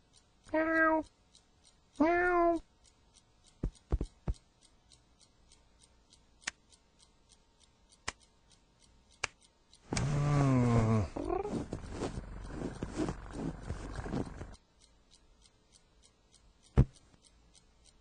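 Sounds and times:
faint regular ticking: 0.0s - 18.0s
sharp clicks: 0.0s - 18.0s
cat meowing: 0.5s - 1.1s, 2.0s - 2.6s.

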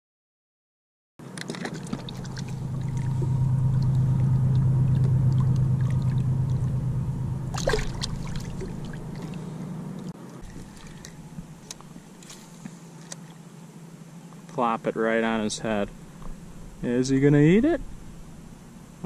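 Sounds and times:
boat motor humming: 1.2s - 19.0s
water splashing and dripping: 1.4s - 6.8s, 7.4s - 9.4s.

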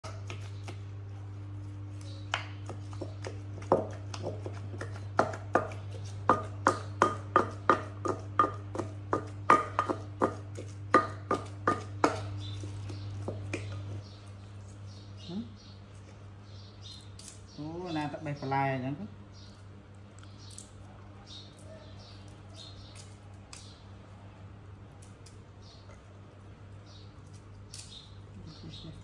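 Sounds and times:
pestle pounding in clay mortar: 2.3s - 14.0s.

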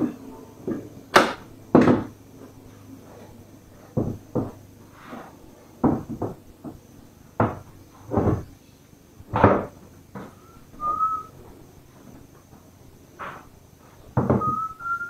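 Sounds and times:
knocks and scuffs on wooden floor: 0.6s - 8.5s, 12.1s - 14.7s.

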